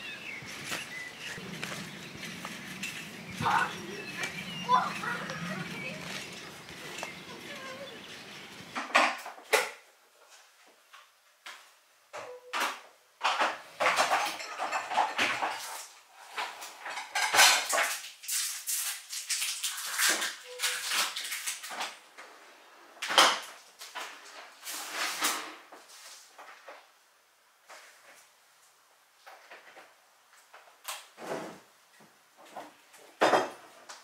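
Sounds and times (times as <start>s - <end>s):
dishes and cutlery clinking: 13.2s - 15.8s, 16.4s - 18.0s.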